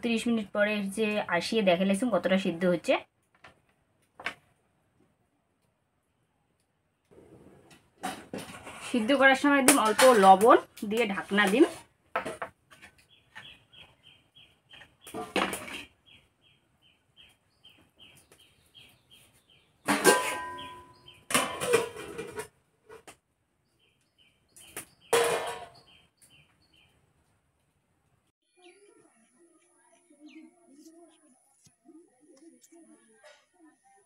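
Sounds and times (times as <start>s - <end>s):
steel lid on wok: 19.9s - 20.6s
steel cookware clattering: 19.9s - 22.5s.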